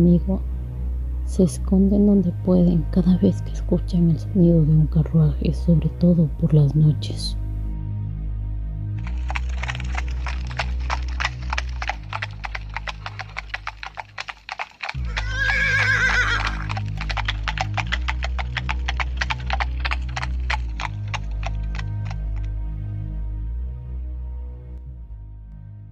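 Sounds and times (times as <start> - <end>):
horse hooves clip-clopping: 9.0 - 22.5
horse neighing: 9.3 - 22.1.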